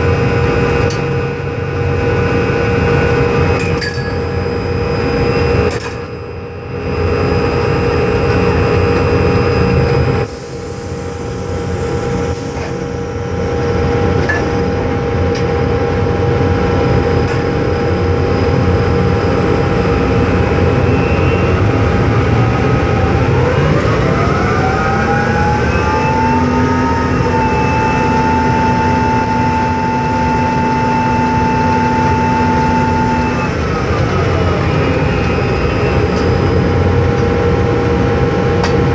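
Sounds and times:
drilling rig machinery drone: 0:00.0 - 0:38.9
top drive whine: 0:11.4 - 0:37.3.

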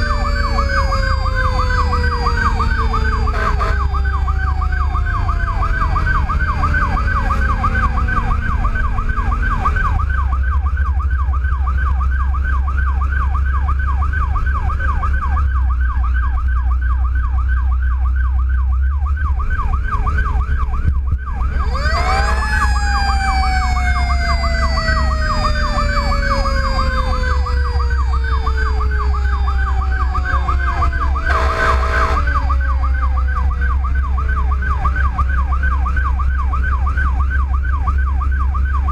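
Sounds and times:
diesel engine rumble: 0:00.0 - 0:38.9
fire truck siren yelp: 0:00.0 - 0:38.9
siren winding up and falling: 0:00.0 - 0:38.9
horn: 0:31.3 - 0:32.3.

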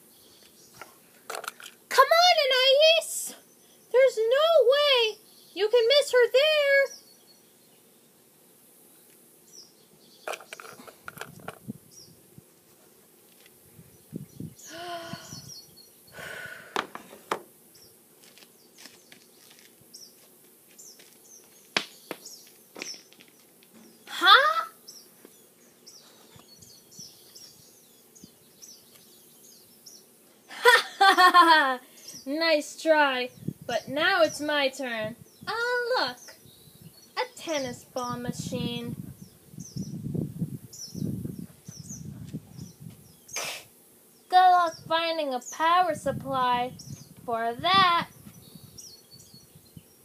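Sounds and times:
small birds chirping: 0:00.0 - 0:50.0
faint bird chirps: 0:13.9 - 0:16.2.

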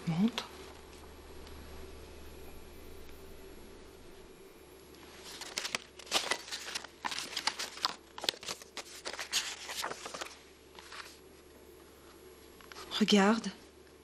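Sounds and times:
paper rustling and crinkling: 0:05.0 - 0:11.6.

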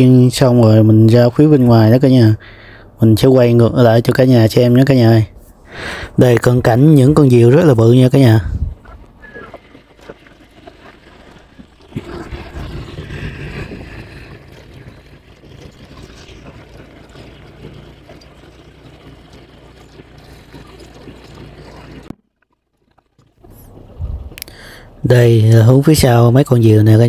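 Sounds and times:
wind buffeting microphone: 0:07.1 - 0:22.1, 0:23.4 - 0:24.5
low rumble: 0:10.7 - 0:22.1, 0:23.5 - 0:24.5.

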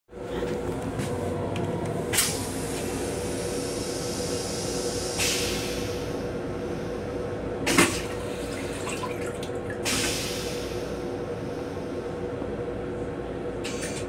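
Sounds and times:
rail car hum: 0:00.1 - 0:14.0
toilet flushing: 0:07.7 - 0:10.5.

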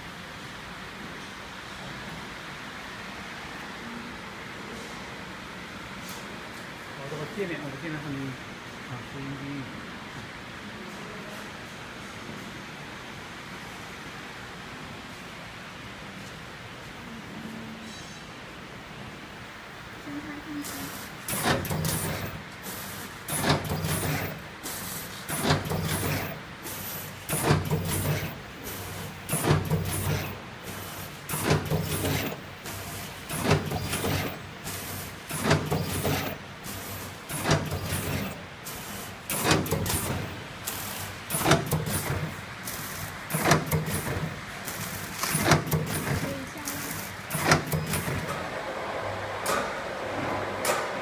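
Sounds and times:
packaging machine low hum: 0:20.1 - 0:51.0.

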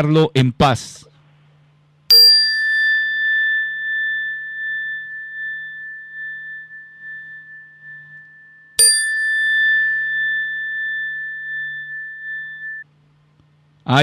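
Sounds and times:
metal bell ringing: 0:02.1 - 0:12.8.

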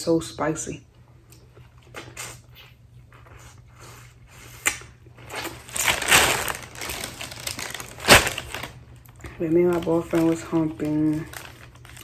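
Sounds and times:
seafood shells crunching: 0:05.3 - 0:12.0.

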